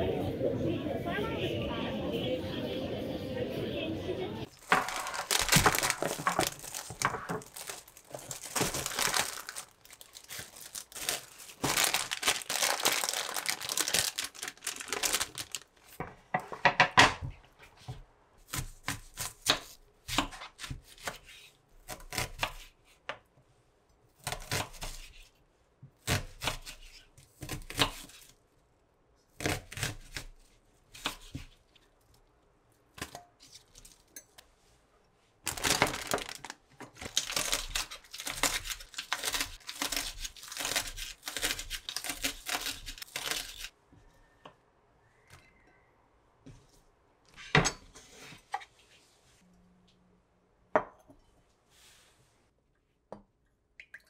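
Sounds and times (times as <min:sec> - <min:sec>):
plastic bags crinkling: 0:04.5 - 0:16.0, 0:35.4 - 0:43.7
knife cutting onion on wooden board: 0:18.4 - 0:23.1, 0:24.2 - 0:25.3, 0:26.0 - 0:28.3, 0:29.4 - 0:31.5.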